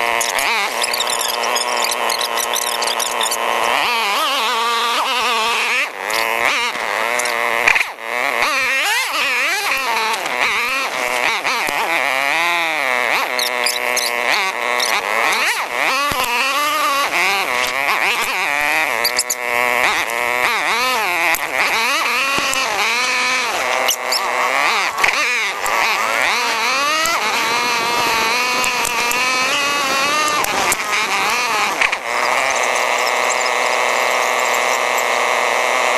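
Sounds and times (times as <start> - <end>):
atv engines revving: 0.0 - 35.9.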